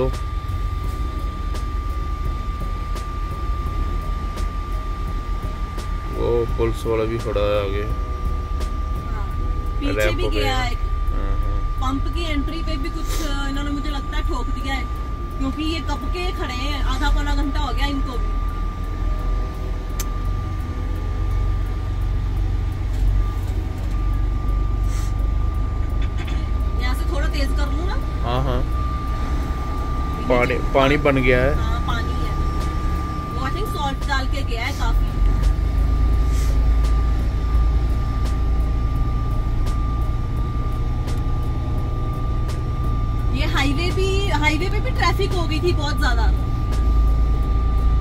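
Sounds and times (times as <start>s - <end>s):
faint high-pitched tone: 0.0s - 35.3s
diesel truck engine rumble: 0.0s - 48.0s
high whine: 0.0s - 48.0s.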